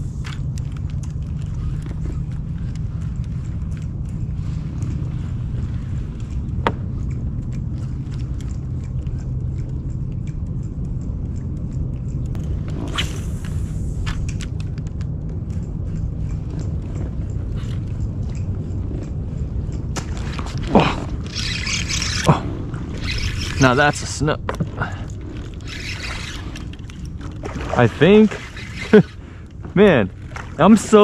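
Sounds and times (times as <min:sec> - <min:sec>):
faint hum: 0:00.0 - 0:31.0
low rumble: 0:00.0 - 0:31.0
light ticks: 0:05.8 - 0:12.6
hissing swish: 0:12.6 - 0:14.4.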